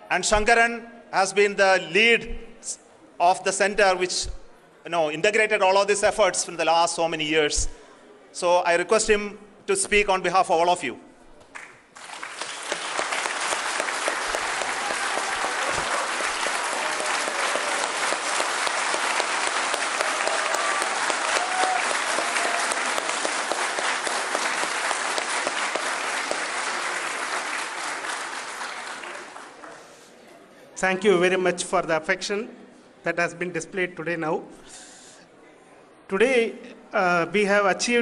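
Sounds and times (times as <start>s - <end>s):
audience applauding: 11.5s - 30.0s.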